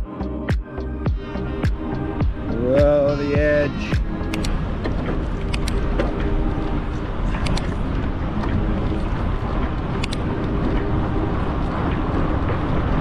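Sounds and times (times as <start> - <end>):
wind on microphone: 1.1 - 13.0
sharp ticks: 2.8 - 4.6, 9.8 - 10.3
bike tires rumbling on sand: 4.5 - 13.0.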